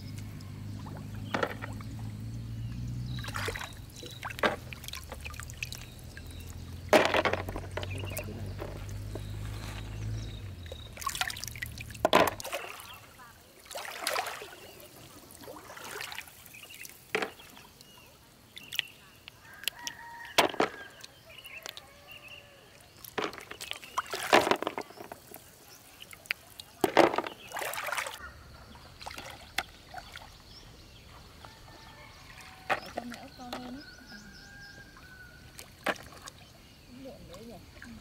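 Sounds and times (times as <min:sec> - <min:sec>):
water splashing and dripping: 0:00.0 - 0:38.0.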